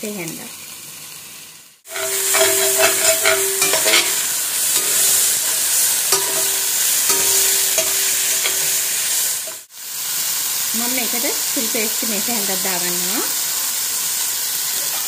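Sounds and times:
vegetables sizzling in oil: 0.0s - 15.0s
spoon scraping metal pan: 1.9s - 9.6s.

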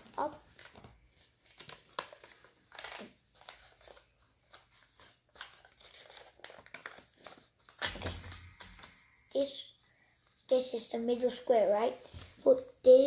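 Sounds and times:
paper crinkling and rustling: 0.0s - 9.2s.

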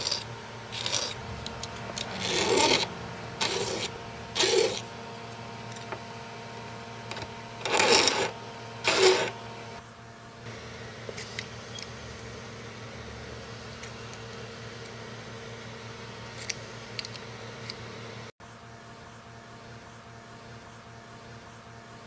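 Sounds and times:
file rasping on metal: 0.0s - 1.2s, 2.0s - 4.9s, 7.6s - 9.4s.

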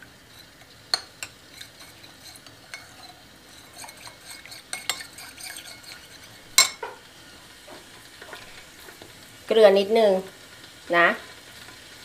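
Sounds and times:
spoon clinking in ceramic bowl: 3.8s - 6.8s.

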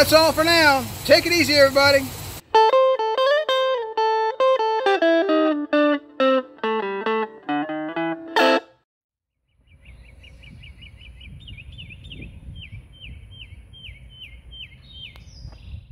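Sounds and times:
guitar plucking and strumming: 2.4s - 8.8s
bird chirping: 9.4s - 15.9s
low rumble of wind: 9.5s - 15.9s.

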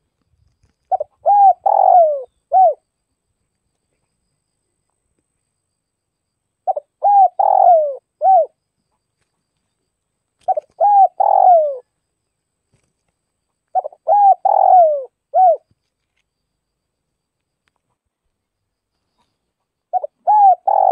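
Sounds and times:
dove cooing: 0.8s - 2.8s, 6.7s - 8.6s, 10.4s - 11.9s, 13.7s - 15.7s, 19.9s - 20.9s.

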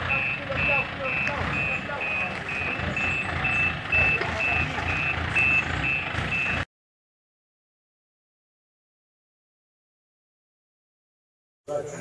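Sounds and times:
truck engine rumbling: 0.0s - 6.7s
truck reversing alarm beeping: 0.0s - 6.7s.

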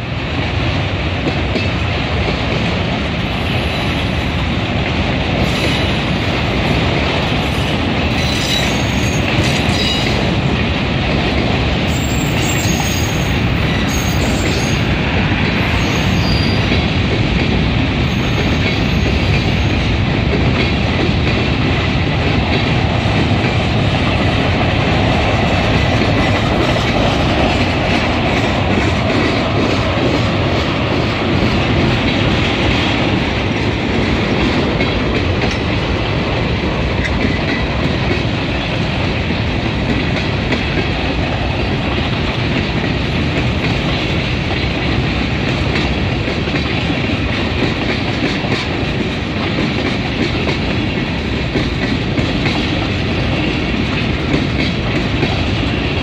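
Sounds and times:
steel wheels rumbling on rail: 0.0s - 56.0s
wheels clacking over rail joints: 4.8s - 56.0s.

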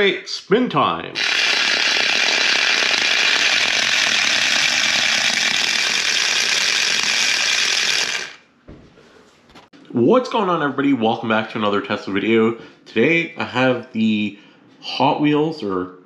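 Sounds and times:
toy car electric motor whirring: 1.2s - 8.4s.

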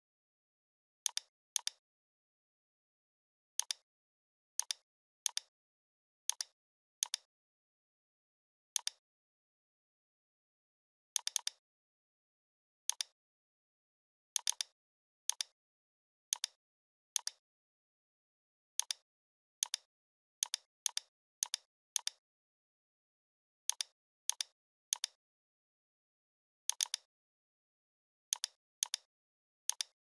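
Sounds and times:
computer mouse clicks: 1.0s - 1.8s, 3.6s - 3.8s, 4.6s - 5.5s, 6.3s - 7.3s, 8.8s - 9.0s, 11.2s - 11.6s, 12.9s - 13.2s, 14.4s - 15.6s, 16.3s - 16.6s, 18.8s - 19.0s, 19.6s - 22.2s, 23.7s - 25.2s, 26.7s - 27.1s, 28.3s - 29.1s, 29.7s - 30.0s.

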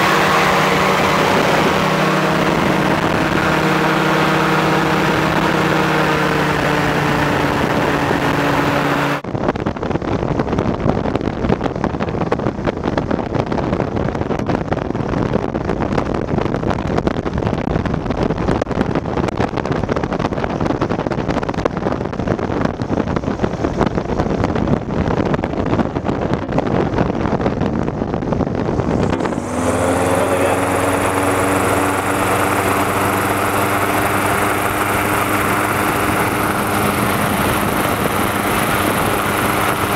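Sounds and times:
rough steady noise: 0.0s - 9.3s, 28.5s - 39.9s
engine and propeller drone: 0.0s - 9.8s, 25.2s - 39.9s.

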